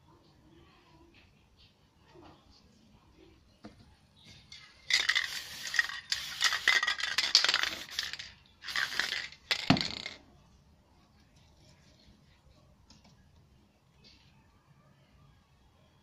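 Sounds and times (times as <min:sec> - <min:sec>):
spray can spraying: 0:04.5 - 0:10.1
spray can rattling: 0:04.5 - 0:10.2.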